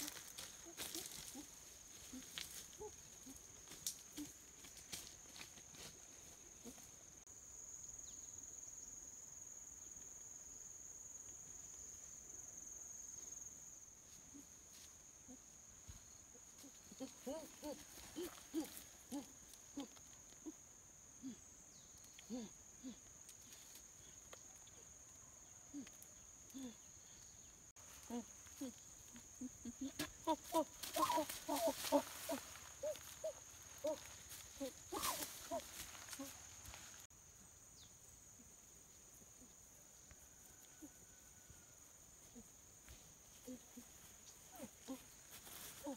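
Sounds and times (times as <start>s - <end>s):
short low animal calls: 29.4s - 36.4s.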